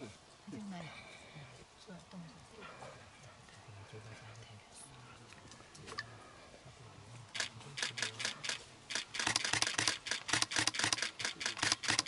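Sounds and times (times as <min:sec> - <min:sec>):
camera shutters clicking: 0:07.4 - 0:12.0.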